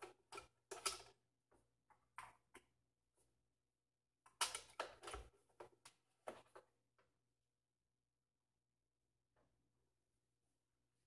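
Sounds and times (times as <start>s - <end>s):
plastic parts clicking and scraping: 0.0s - 1.3s, 4.3s - 6.7s.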